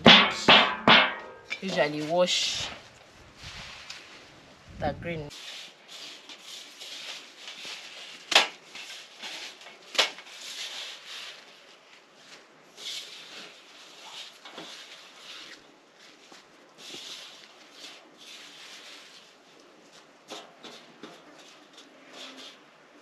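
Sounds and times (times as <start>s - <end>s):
sharp knocks on metal tray: 0.0s - 1.4s
leafy greens rustling and crackling: 0.0s - 23.0s.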